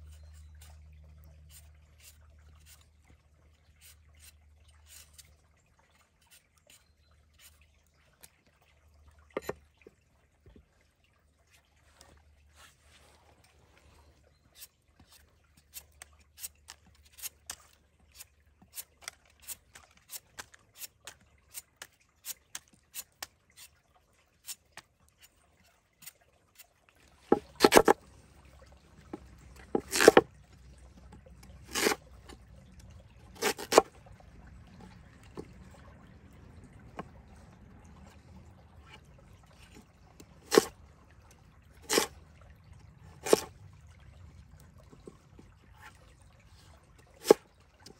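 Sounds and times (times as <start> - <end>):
stream trickling: 0.0 - 47.9
knife cutting sweet potato: 29.8 - 30.2, 31.7 - 32.0, 40.4 - 40.7, 41.9 - 42.1.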